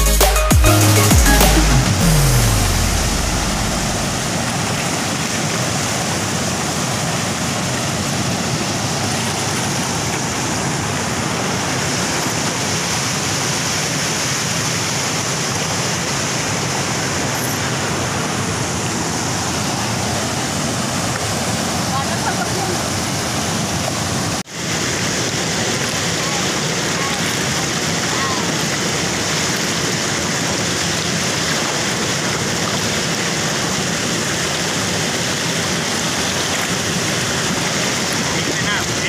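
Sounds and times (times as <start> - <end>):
deep bass note: 0.0 - 4.5
white water rushing over rocks: 0.4 - 39.0.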